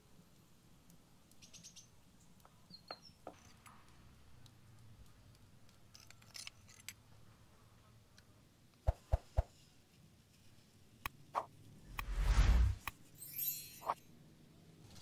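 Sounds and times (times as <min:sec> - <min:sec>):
bird chirp: 0:01.3 - 0:03.5.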